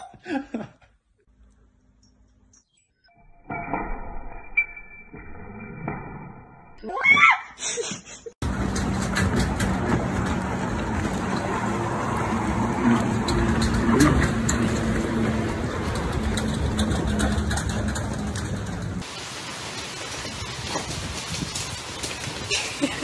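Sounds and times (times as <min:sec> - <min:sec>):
jet ski engine humming: 0:08.4 - 0:19.0
wind buffeting microphone: 0:20.1 - 0:22.9.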